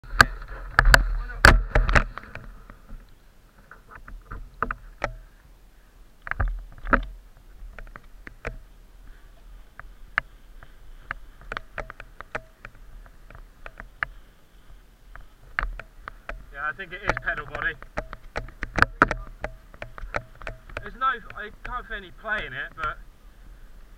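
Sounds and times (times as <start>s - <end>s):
bicycle pedal clicking: 9.7s - 23.0s.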